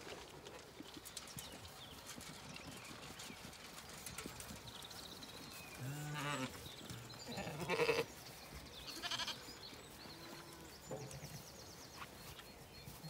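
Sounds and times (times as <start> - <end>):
sheep bleating: 7.2 - 8.1, 8.9 - 9.4.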